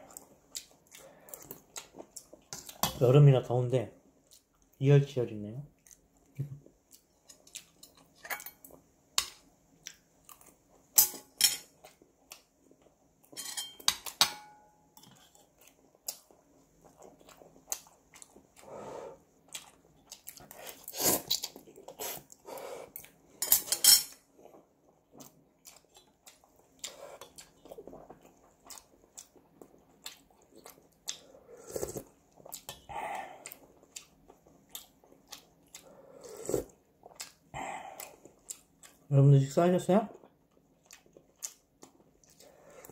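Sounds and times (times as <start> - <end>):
chopsticks and spoon clinking pot: 13.4 - 15.1
chewing and slurping noodles: 24.4 - 39.1.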